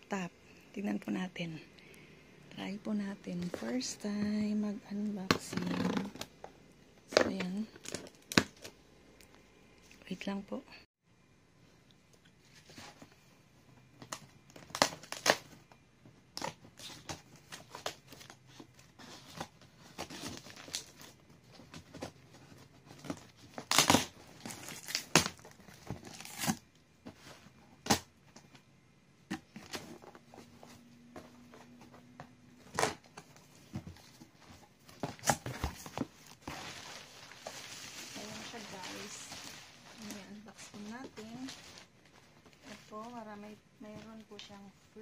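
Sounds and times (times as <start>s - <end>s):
cardboard rustling and crinkling: 13.8s - 28.6s, 29.3s - 44.7s
packing tape ripping off cardboard: 14.5s - 15.6s, 23.0s - 26.6s, 35.0s - 36.7s.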